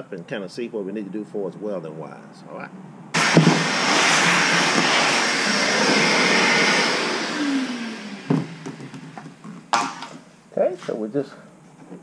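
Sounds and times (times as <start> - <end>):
vacuum motor winding down: 3.2 - 9.3
shop vacuum running: 3.2 - 10.1.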